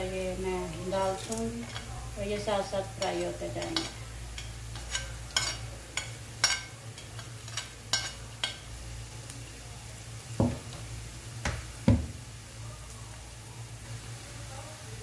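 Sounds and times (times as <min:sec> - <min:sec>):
onions frying in a pan: 0:00.0 - 0:15.0.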